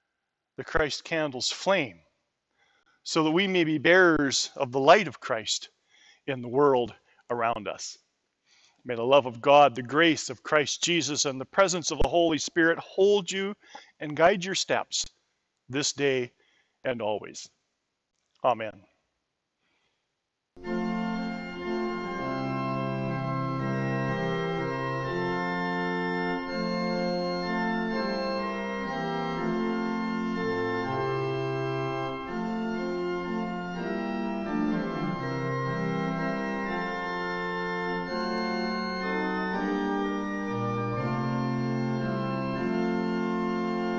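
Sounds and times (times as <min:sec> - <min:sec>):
organ chords: 0:20.6 - 0:43.9.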